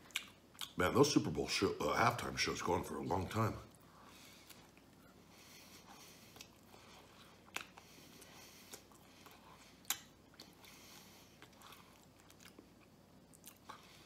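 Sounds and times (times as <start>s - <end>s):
man chewing food: 0.0s - 0.8s, 3.7s - 14.0s.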